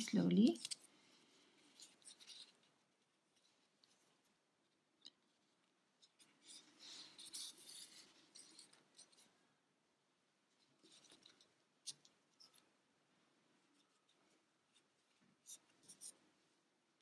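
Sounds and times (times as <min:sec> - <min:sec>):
fingers rustling on yarn: 0:00.0 - 0:09.5, 0:13.4 - 0:16.6.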